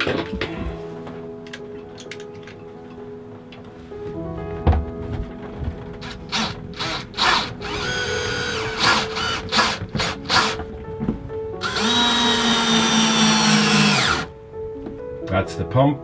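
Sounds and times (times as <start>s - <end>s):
cordless drill driving screws: 6.0s - 10.6s, 11.6s - 14.3s.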